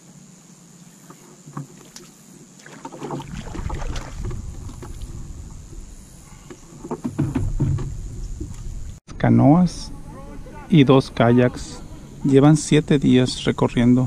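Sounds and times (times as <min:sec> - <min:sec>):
water splashing: 0:01.6 - 0:09.0
wind rumble on microphone: 0:03.3 - 0:10.6.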